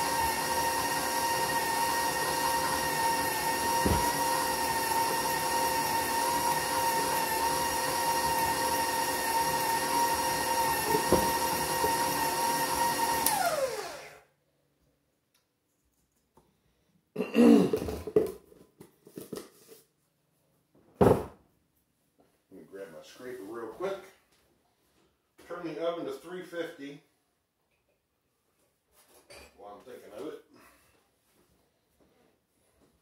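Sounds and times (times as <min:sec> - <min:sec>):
stand mixer motor whine: 0:00.0 - 0:14.2.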